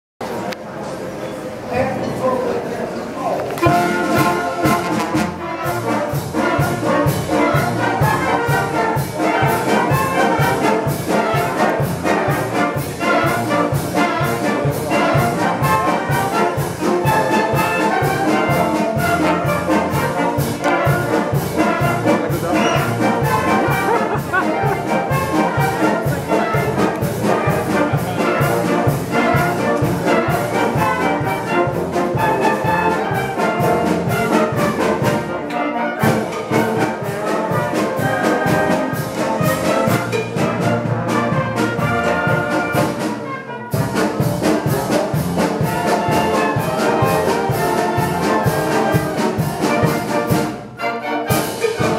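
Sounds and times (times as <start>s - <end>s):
wind band playing lively piece: 3.3s - 51.9s.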